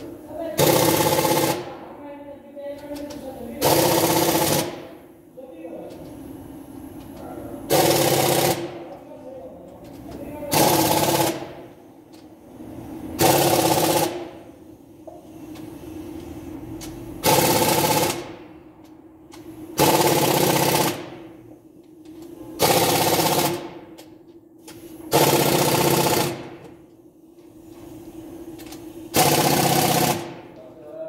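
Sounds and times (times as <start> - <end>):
impact wrench hammering rattle: 2.8 - 5.0, 7.0 - 9.0, 9.8 - 12.3, 13.2 - 14.4, 15.0 - 18.4, 19.3 - 21.4, 22.0 - 26.8, 28.5 - 30.6.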